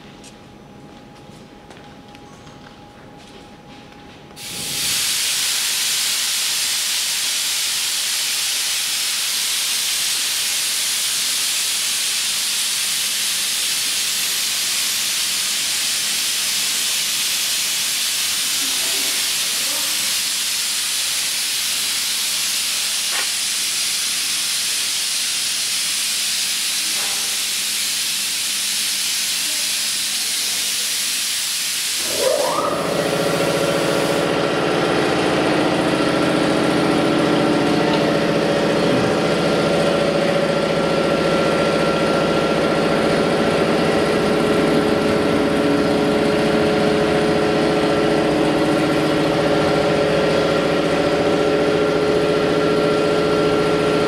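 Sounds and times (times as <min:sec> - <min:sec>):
plasma torch hissing: 0:04.4 - 0:34.6.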